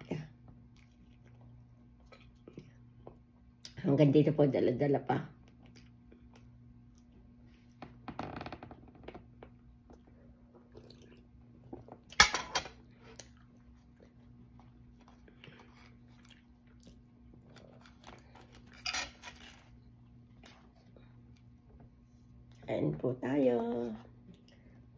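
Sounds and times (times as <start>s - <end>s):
faint low hum: 0.0s - 24.9s
person chewing bread: 0.6s - 3.6s, 5.4s - 8.0s, 9.2s - 12.1s, 12.8s - 22.6s.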